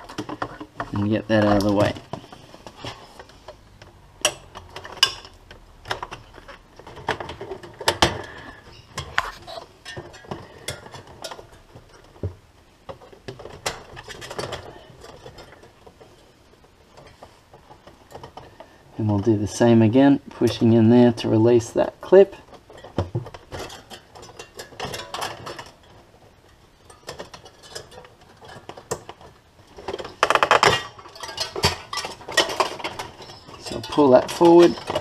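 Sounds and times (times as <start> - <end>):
plastic rustling: 20.2 - 35.0.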